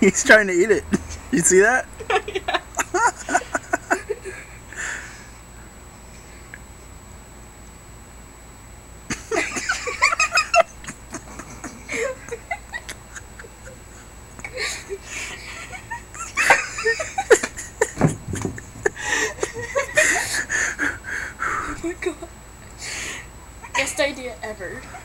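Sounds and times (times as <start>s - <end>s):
people laughing: 0.8s - 4.5s, 9.1s - 22.3s.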